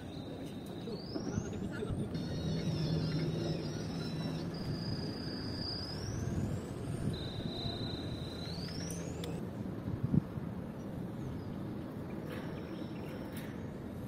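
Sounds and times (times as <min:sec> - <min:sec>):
high whistling tones gliding upward: 0:00.0 - 0:09.4
faint hum: 0:00.0 - 0:14.0.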